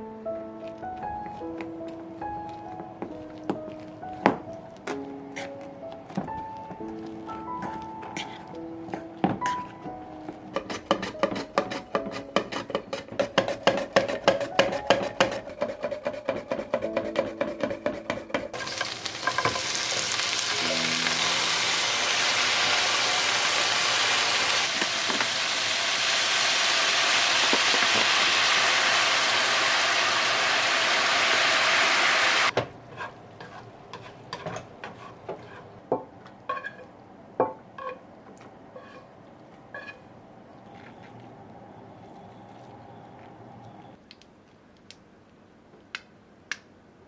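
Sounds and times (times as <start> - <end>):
vegetables sizzling in a frying pan: 18.6 - 32.5
light taps and scrapes: 38.8 - 39.1.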